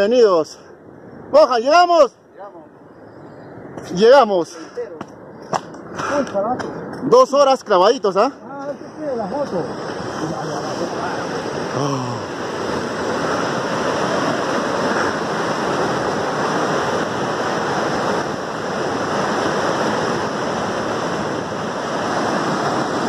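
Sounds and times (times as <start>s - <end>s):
waterfall rushing: 8.7s - 23.0s.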